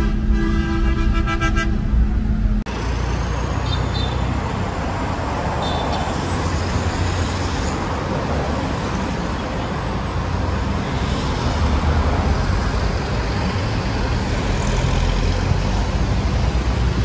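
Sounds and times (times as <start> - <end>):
steady multi-pitched tone: 0.0 - 2.7
buses and cars in traffic: 0.0 - 17.0.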